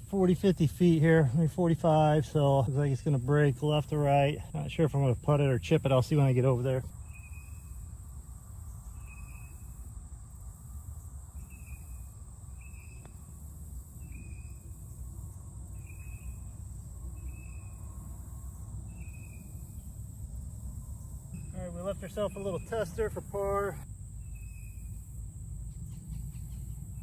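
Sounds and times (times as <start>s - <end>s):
low rumble of wind: 0.0s - 27.0s.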